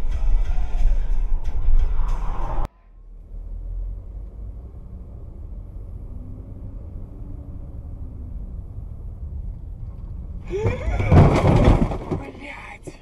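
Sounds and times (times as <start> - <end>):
car engine rumble: 0.0 - 13.0
road noise: 0.0 - 13.0.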